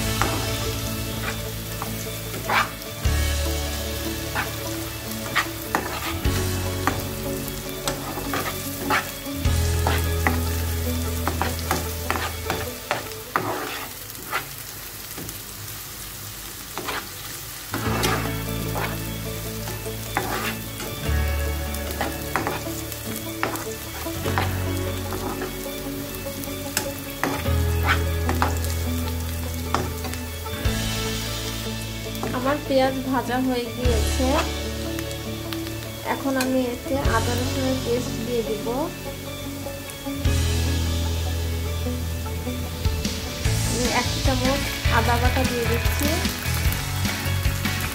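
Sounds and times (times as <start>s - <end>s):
spatula scraping pan: 0.0s - 14.7s, 16.7s - 17.2s, 17.8s - 33.0s, 33.8s - 34.9s
onions sizzling in oil: 0.0s - 47.9s.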